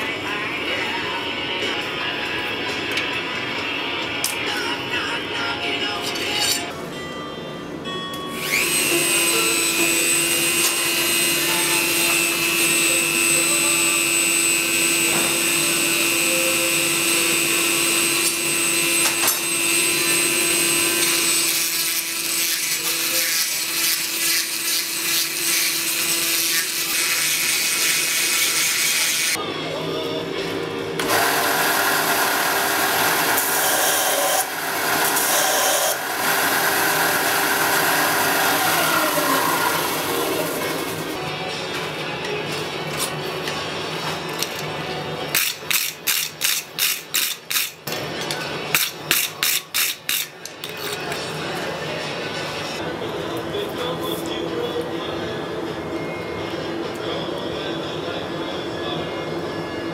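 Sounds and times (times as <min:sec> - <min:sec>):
grinding machine whining: 0:08.3 - 0:29.4, 0:31.0 - 0:41.4
belt sander grinding: 0:08.4 - 0:29.4, 0:31.0 - 0:41.0.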